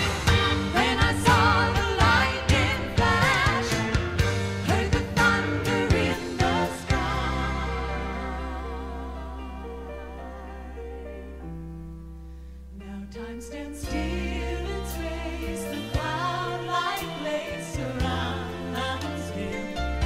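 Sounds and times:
live band with drums: 0.0s - 7.6s
vocal harmonies: 0.0s - 20.0s.

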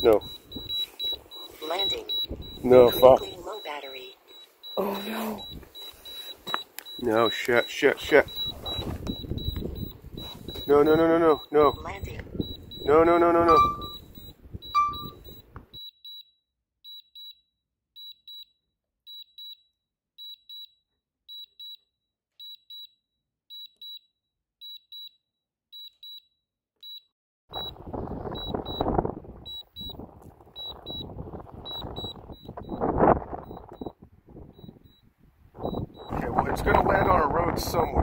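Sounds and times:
short high warning beeps: 0.0s - 16.3s, 27.6s - 28.9s, 29.5s - 30.0s, 30.6s - 32.8s, 33.4s - 33.9s, 34.5s - 38.0s.

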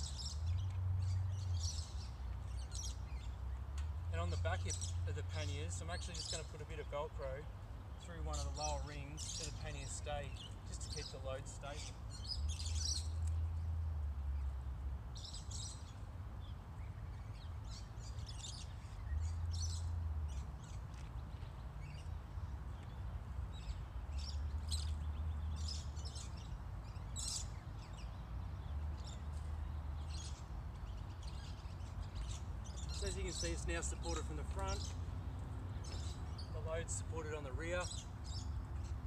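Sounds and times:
birds chirping: 0.0s - 39.0s.

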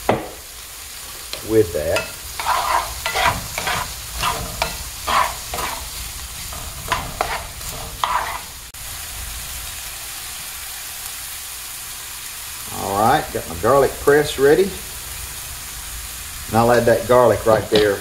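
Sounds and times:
vegetables sizzling in oil: 0.0s - 18.0s
wooden spatula scraping skillet: 1.1s - 8.7s.

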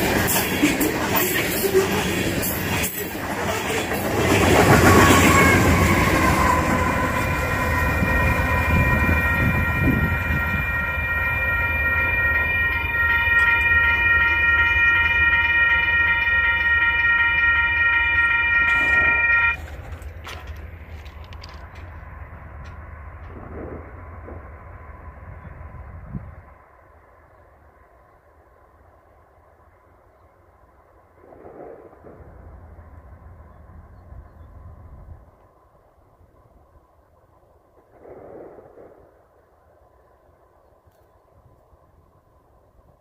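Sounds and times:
freight train rumbling past: 0.0s - 27.2s
high-pitched held tone: 5.1s - 19.6s.

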